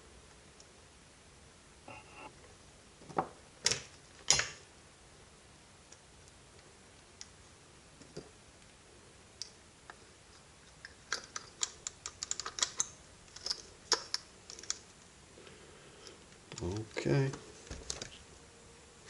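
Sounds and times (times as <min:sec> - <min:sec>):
plastic parts clicking and tapping: 0:10.7 - 0:14.8.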